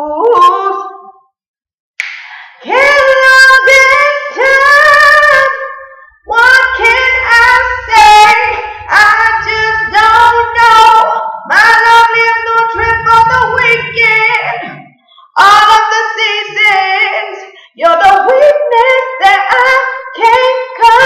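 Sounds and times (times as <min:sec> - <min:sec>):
singer breathing: 0:02.2 - 0:02.7, 0:17.5 - 0:17.8
woman singing r and b melody: 0:06.3 - 0:21.0.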